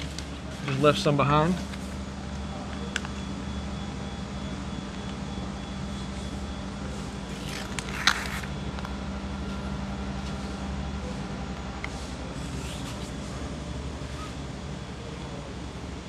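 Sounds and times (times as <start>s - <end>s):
low machine hum: 0.0s - 16.0s
paper crinkling: 7.3s - 8.5s.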